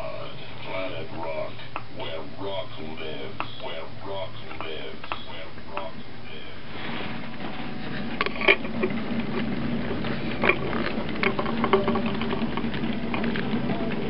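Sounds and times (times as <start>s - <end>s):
wheels clicking and rattling on rails: 6.8s - 14.0s.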